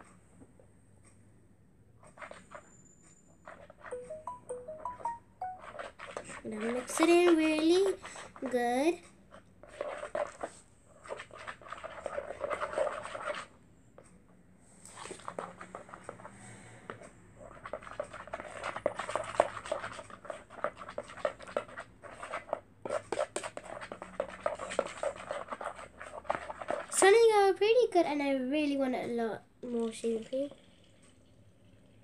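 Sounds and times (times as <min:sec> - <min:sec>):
sticky clicking and scraping: 0:02.0 - 0:02.7, 0:05.0 - 0:13.6, 0:14.8 - 0:27.2
slime being stirred in a bowl: 0:02.0 - 0:13.6, 0:14.7 - 0:32.0.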